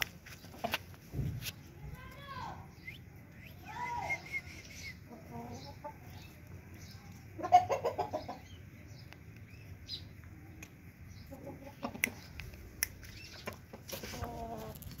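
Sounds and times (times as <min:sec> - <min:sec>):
chickens clucking: 0:00.3 - 0:01.1, 0:04.3 - 0:15.0.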